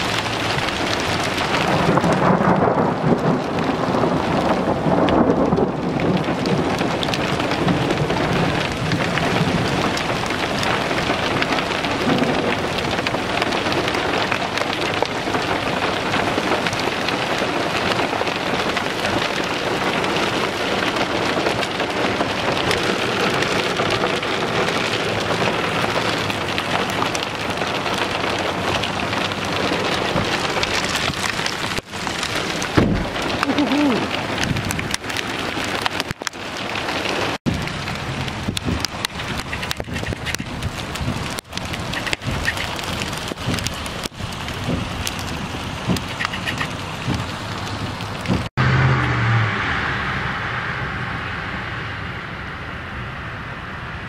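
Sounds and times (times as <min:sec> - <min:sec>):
low rumble of thunder: 0:00.0 - 0:35.0, 0:46.9 - 0:54.0
hailstones pelting asphalt and car: 0:00.0 - 0:48.9.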